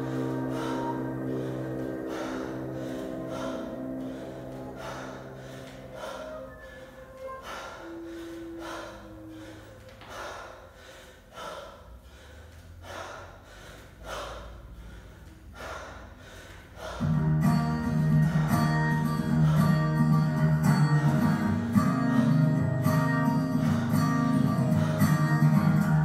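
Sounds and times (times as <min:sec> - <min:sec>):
faint background music: 0:00.0 - 0:10.8, 0:16.7 - 0:26.0
woman breathing hard: 0:00.0 - 0:26.0
guitar music: 0:17.0 - 0:26.0.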